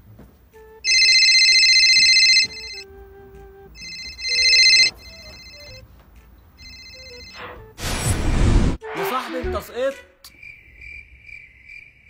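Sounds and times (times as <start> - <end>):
soft background music: 0.0 - 7.8
telephone ringing electronic trill: 0.9 - 2.8, 3.8 - 5.8, 6.6 - 7.4.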